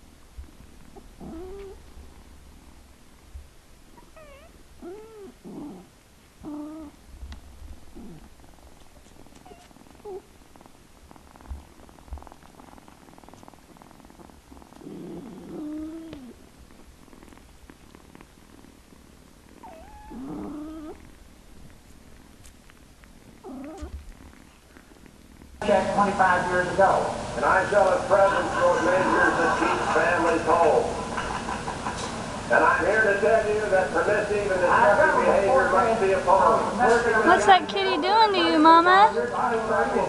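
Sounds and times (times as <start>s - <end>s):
low purr: 0.0s - 37.3s
kittens meowing: 1.0s - 1.8s, 4.0s - 5.8s, 6.4s - 7.0s, 19.6s - 21.1s, 23.4s - 24.0s.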